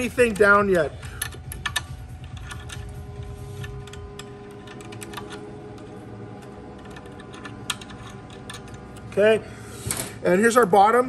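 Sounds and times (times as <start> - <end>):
metal fitting clicks and ticks: 0.0 - 3.0
faint steady hum: 0.0 - 11.0.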